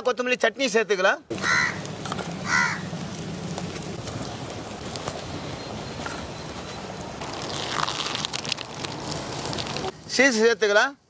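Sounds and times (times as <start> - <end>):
omelettes sizzling on hot iron: 1.8 - 9.9.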